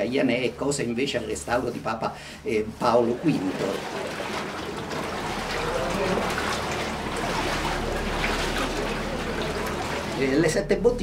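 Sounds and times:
low steady hum: 0.0 - 11.0
water running in channel: 2.4 - 11.0.

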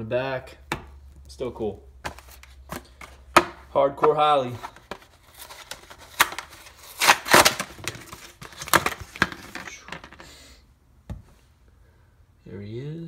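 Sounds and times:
plastic packaging crackling: 4.6 - 10.0.

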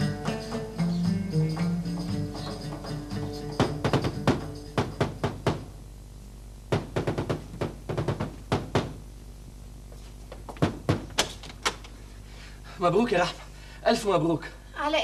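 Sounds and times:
knocking on wooden door: 3.5 - 5.7, 6.7 - 9.0, 10.5 - 11.4.

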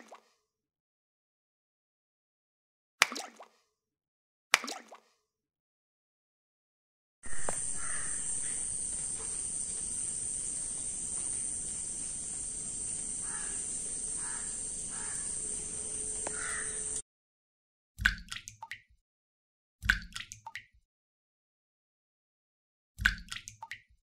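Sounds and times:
crows cawing: 7.3 - 17.0
steady high hiss: 7.3 - 17.0.

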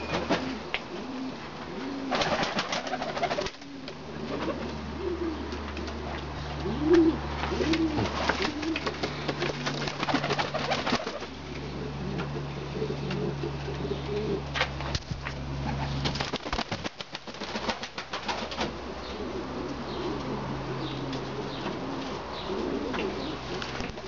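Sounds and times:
pigeons cooing: 0.0 - 16.2, 18.4 - 24.0
steady low hum: 0.0 - 24.0
wing flaps and clatters: 7.4 - 11.4, 14.6 - 18.8.

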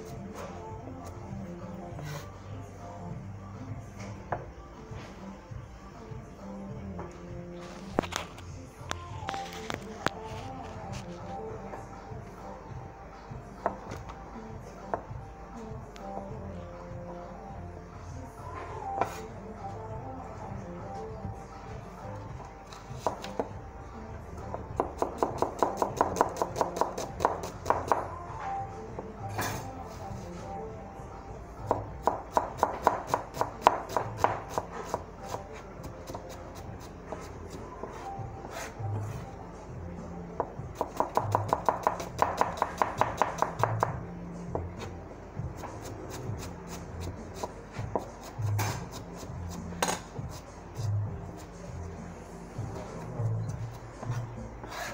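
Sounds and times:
knife chopping on cutting board: 23.0 - 23.5, 24.8 - 28.0, 40.8 - 44.0
knife chopping onion on board: 23.0 - 23.5, 24.5 - 28.1, 31.7 - 38.8, 40.4 - 44.0, 45.6 - 51.0.

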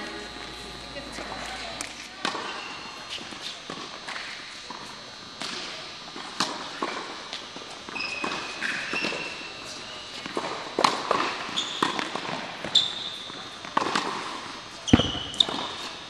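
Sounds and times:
rackets striking tennis ball: 1.8 - 9.4, 10.2 - 15.9
shoes squeaking on court: 7.8 - 10.4, 11.1 - 13.8, 14.8 - 16.0.

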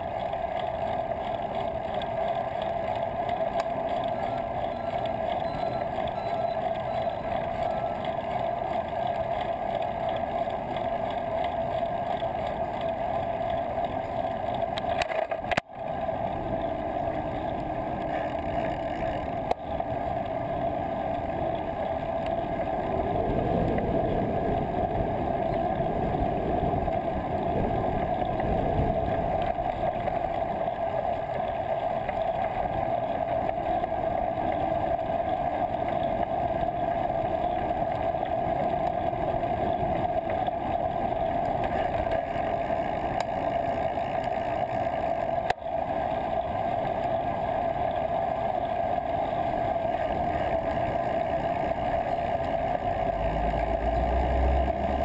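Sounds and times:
constant droning note: 0.0 - 55.0
wind on microphone: 22.7 - 30.3.

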